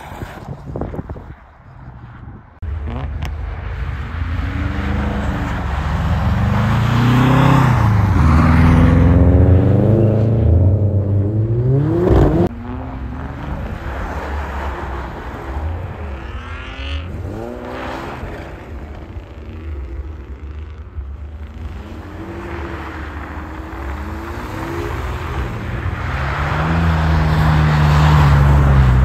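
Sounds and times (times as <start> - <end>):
car engines revving hard: 2.6 - 29.0.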